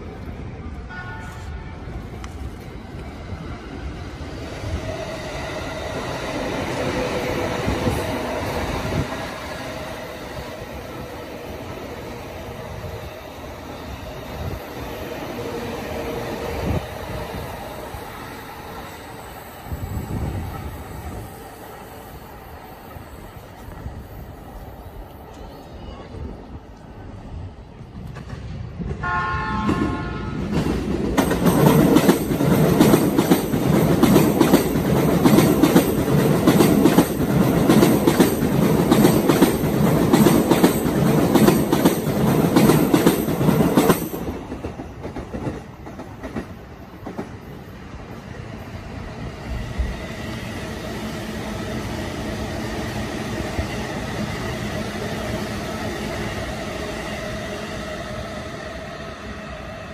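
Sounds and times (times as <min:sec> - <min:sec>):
train running with faint whine: 0:00.0 - 0:59.9
train wheels clattering on rails: 0:27.8 - 0:47.7.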